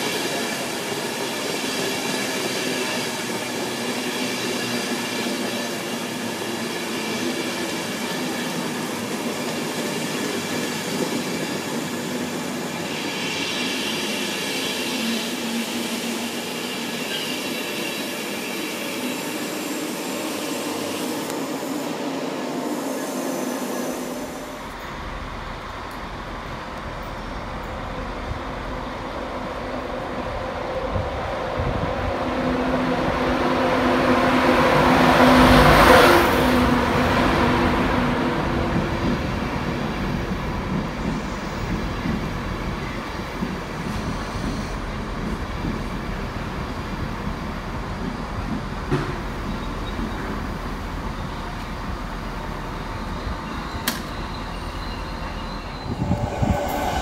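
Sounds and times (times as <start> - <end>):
train wheels roaring on rail: 0.0 - 57.0
wind rumbling on microphone: 30.3 - 33.4, 55.6 - 57.0.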